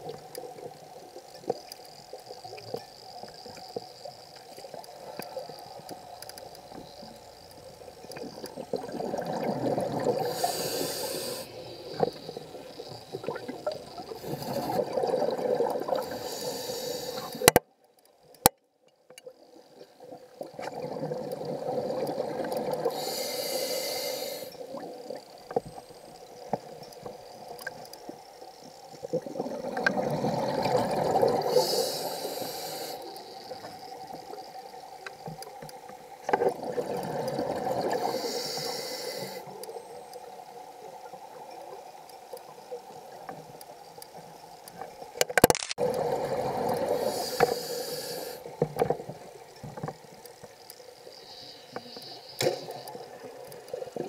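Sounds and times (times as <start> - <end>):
regulator hiss: 9.9 - 15.1, 15.8 - 17.6, 22.6 - 36.4, 37.8 - 41.3, 45.9 - 54.0
sharp clicks: 17.1 - 17.7, 44.0 - 46.0.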